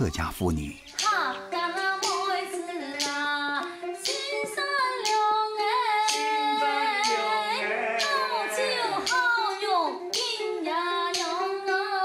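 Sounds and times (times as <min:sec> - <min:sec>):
plucked lute: 0:00.8 - 0:12.0
sharp percussive knocks: 0:00.9 - 0:02.4
woman singing: 0:00.9 - 0:12.0.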